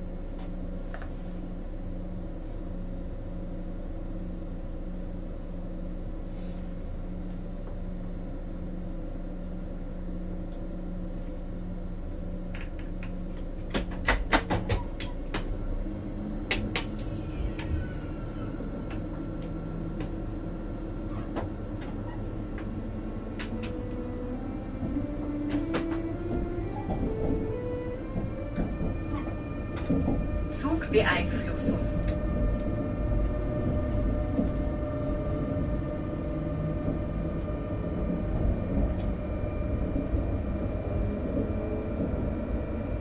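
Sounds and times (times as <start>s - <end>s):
electric train hum: 0.0s - 43.0s
train wheels clicking and knocking: 13.7s - 15.5s, 24.8s - 30.8s.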